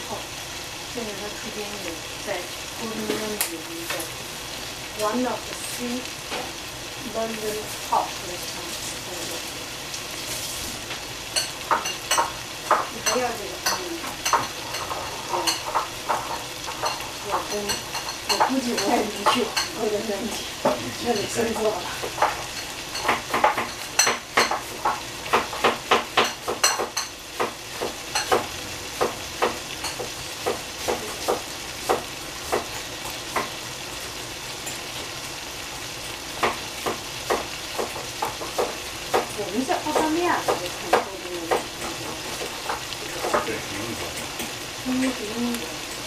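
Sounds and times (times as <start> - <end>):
vegetables sizzling in pan: 0.0 - 46.0
utensil knocking against pan: 11.4 - 19.7, 20.6 - 33.6, 36.4 - 43.6.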